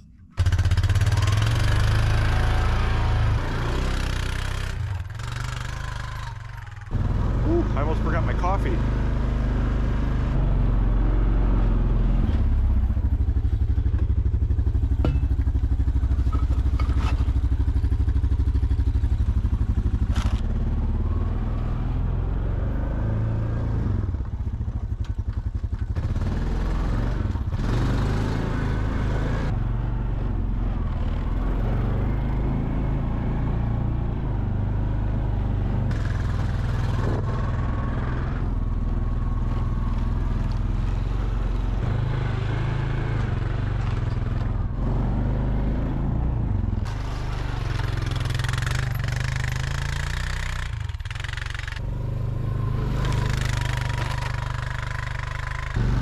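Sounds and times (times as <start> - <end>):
atv engine running: 0.0 - 56.0.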